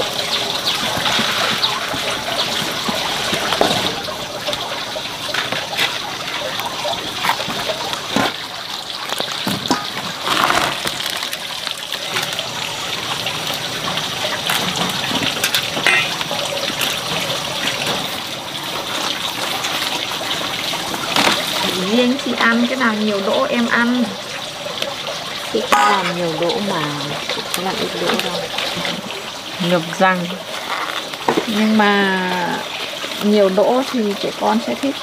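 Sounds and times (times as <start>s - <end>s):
water trickling and splashing: 0.0s - 35.0s.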